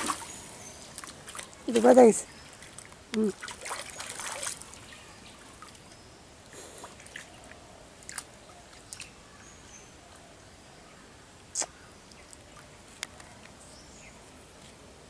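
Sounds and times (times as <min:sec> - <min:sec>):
water splash: 0:00.0 - 0:00.4, 0:01.0 - 0:05.0.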